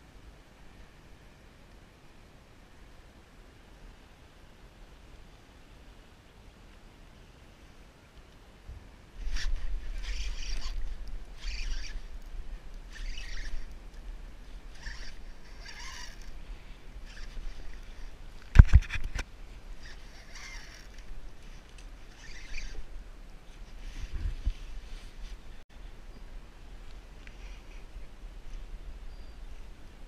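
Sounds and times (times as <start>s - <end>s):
wind rumble on microphone: 8.6s - 27.2s.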